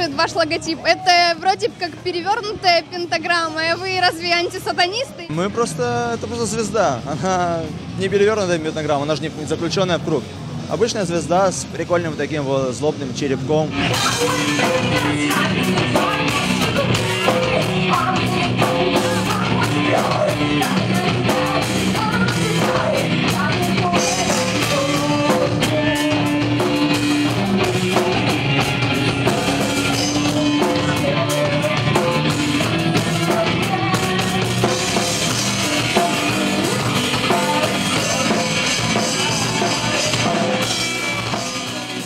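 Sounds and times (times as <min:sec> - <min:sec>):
distorted guitars: 0:00.0 - 0:42.0
drum kit: 0:13.7 - 0:42.0
woman singing: 0:13.9 - 0:28.3, 0:29.8 - 0:41.6.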